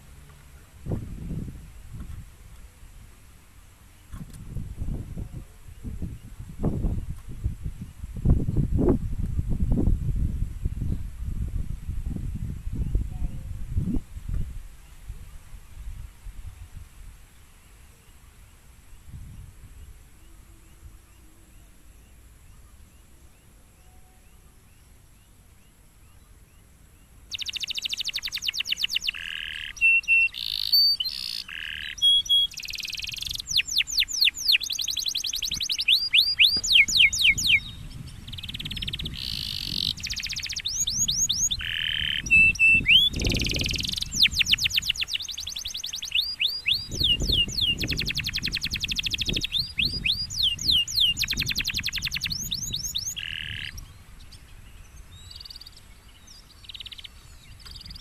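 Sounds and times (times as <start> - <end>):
canary singing: 27.3 - 53.9, 55.2 - 58.0.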